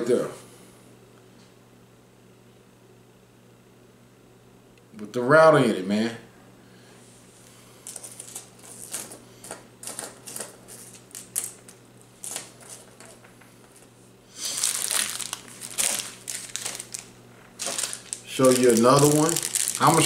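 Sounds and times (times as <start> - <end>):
plastic packaging crinkling: 7.8 - 20.0.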